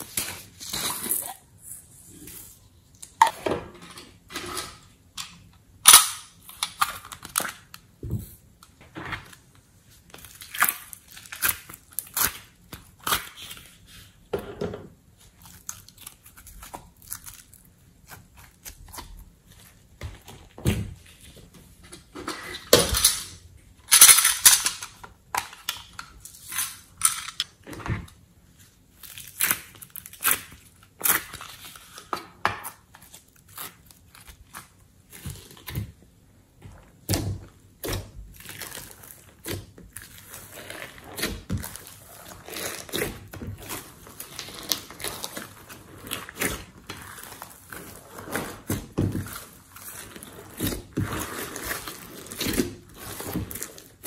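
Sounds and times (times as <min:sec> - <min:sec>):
slime squishing by hand: 0:15.0 - 0:22.8, 0:24.9 - 0:54.0.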